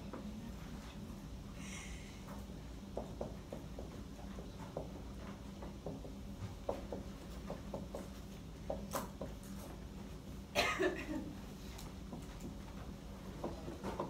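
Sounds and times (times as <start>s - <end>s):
steady low hum: 0.0s - 14.0s
person coughing: 10.5s - 11.3s.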